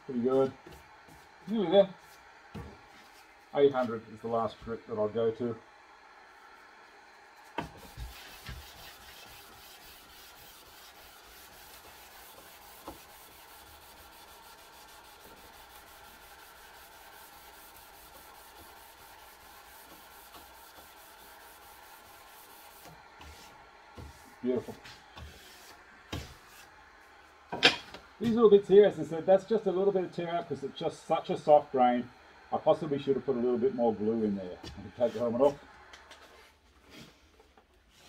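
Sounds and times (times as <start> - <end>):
sandpaper rubbing on wood: 7.6 - 26.7.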